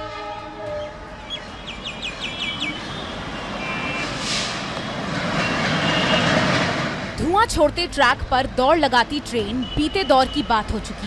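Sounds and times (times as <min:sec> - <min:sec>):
locomotive horn: 0:00.0 - 0:01.2, 0:05.4 - 0:06.5
train rumble: 0:00.0 - 0:11.0.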